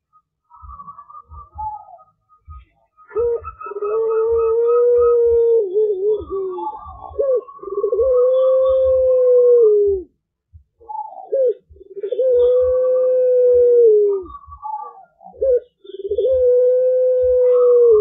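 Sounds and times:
dove cooing: 0.5s - 10.2s, 10.8s - 18.0s.

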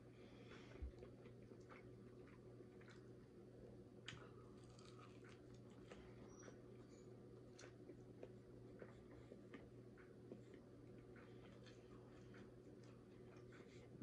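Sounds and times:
chewing crispy food: 0.2s - 14.0s.

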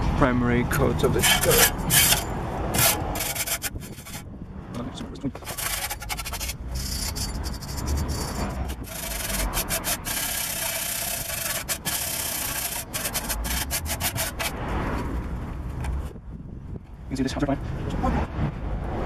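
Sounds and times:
wire brush scrubbing rusty metal: 1.0s - 4.3s, 5.3s - 14.6s.

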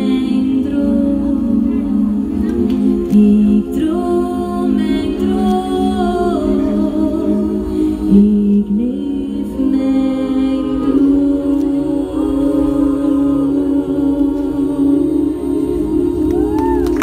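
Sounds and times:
sustained backing music: 0.0s - 17.0s
woman singing into microphone: 0.0s - 17.0s.

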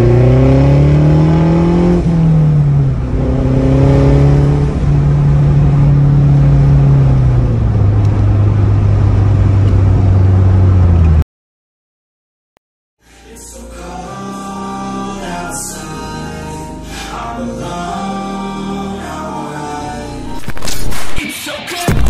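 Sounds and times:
car exhaust drone: 0.0s - 11.2s.

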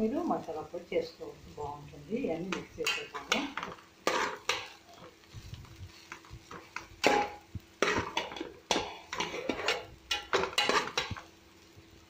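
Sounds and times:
spatula scraping metal pot: 2.5s - 11.2s.

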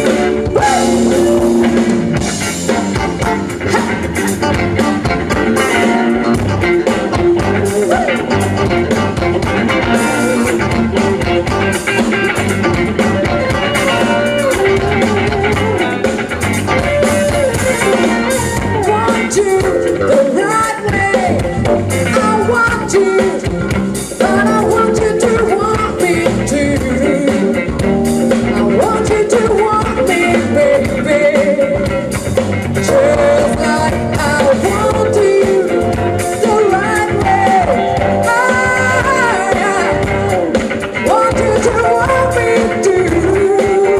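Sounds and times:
drum kit: 0.0s - 43.9s
electric guitars: 0.0s - 43.9s
woman singing: 18.6s - 27.8s, 28.6s - 32.0s, 32.8s - 43.9s.

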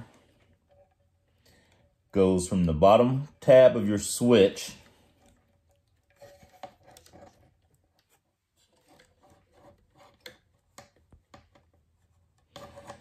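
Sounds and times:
small clicks and rubs of wiring: 5.1s - 13.0s.

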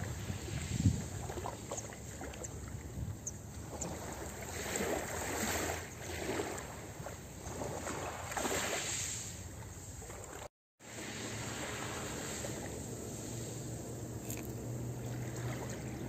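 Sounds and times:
waves washing onto pebble beach: 10.9s - 14.5s.

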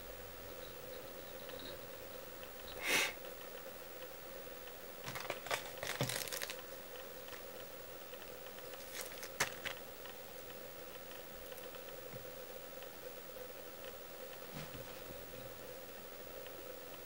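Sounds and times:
faint steady hum: 0.0s - 17.0s
tool clicks and crinkling: 5.0s - 6.6s, 8.5s - 9.8s
rustling of materials: 5.0s - 7.6s, 8.2s - 9.8s.

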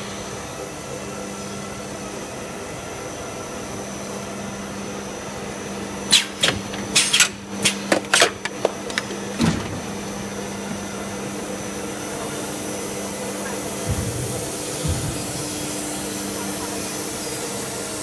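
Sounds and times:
machine humming and whining: 0.0s - 18.0s
pneumatic hisses and clacks: 6.1s - 10.0s, 13.4s - 17.5s
heavy machine clunk: 6.2s - 10.2s.

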